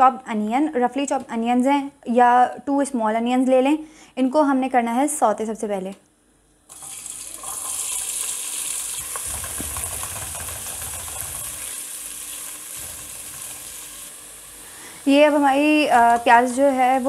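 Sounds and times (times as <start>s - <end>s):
onions sizzling in hot oil: 6.7s - 17.0s.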